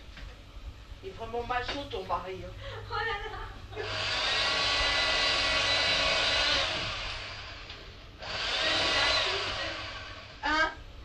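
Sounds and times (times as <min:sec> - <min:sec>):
small appliance motor whirring: 0:03.8 - 0:10.6.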